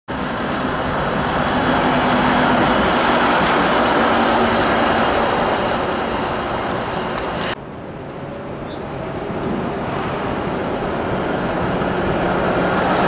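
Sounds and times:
streetcar wheels rumbling on rails: 0:00.1 - 0:13.0.

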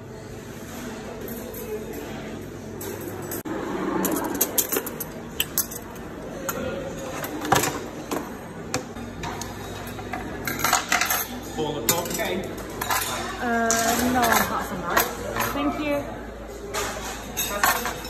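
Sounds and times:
murmur of voices: 0:00.0 - 0:18.0
clinks of trays and crockery: 0:04.0 - 0:15.8, 0:16.6 - 0:18.0.

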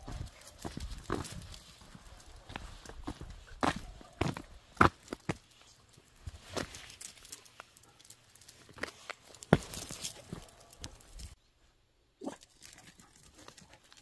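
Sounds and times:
footsteps on concrete: 0:00.0 - 0:05.6, 0:08.6 - 0:11.3
dog paws tapping on concrete: 0:00.0 - 0:11.4.

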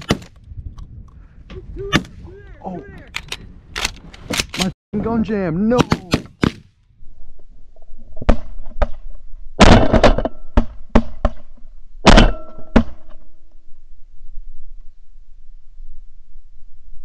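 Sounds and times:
shotgun shots: 0:05.8 - 0:06.7.

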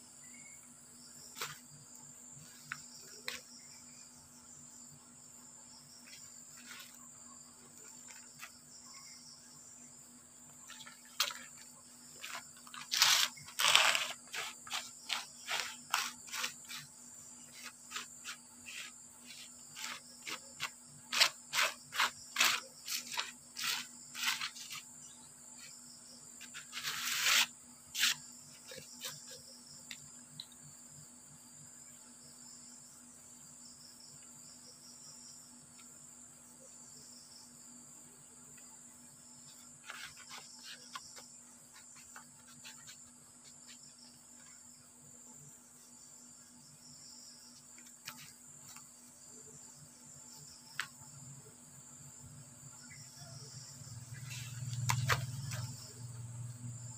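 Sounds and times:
insects chirring: 0:00.0 - 0:56.9
handling and rubbing noises: 0:10.7 - 0:25.0, 0:26.4 - 0:29.5, 0:39.4 - 0:44.5.

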